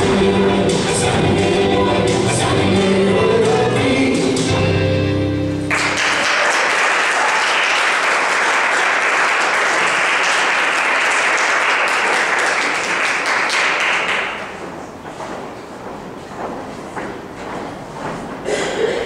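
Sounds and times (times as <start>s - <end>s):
audience applause: 5.7s - 14.8s.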